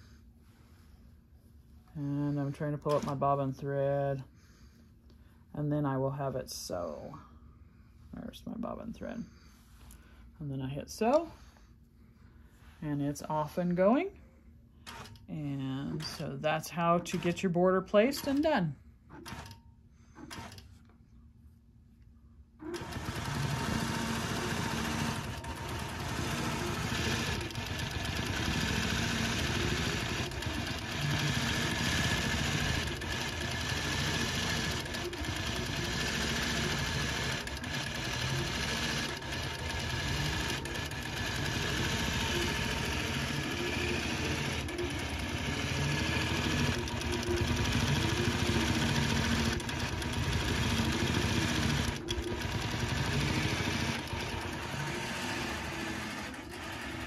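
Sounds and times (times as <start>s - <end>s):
quilting machine stitching: 2.3s - 3.5s, 14.8s - 15.3s, 15.9s - 20.8s, 22.6s - 57.0s.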